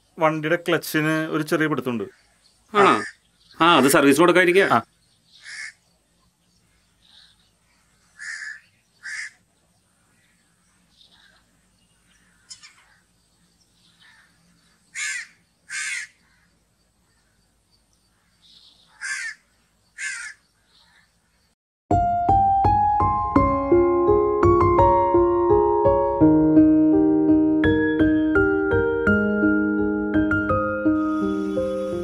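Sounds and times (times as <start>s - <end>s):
faint bird calls: 2.0s - 4.1s, 4.8s - 21.5s
crows cawing: 2.8s - 4.0s, 5.3s - 5.8s, 6.7s - 9.4s, 12.1s - 13.1s, 13.9s - 17.4s, 18.1s - 21.2s.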